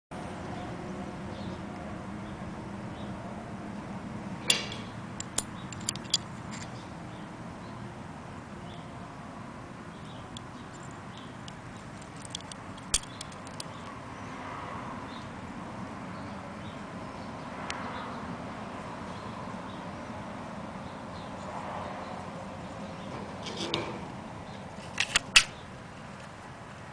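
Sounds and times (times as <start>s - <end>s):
small metal clicks: 4.4s - 6.8s, 10.0s - 13.9s.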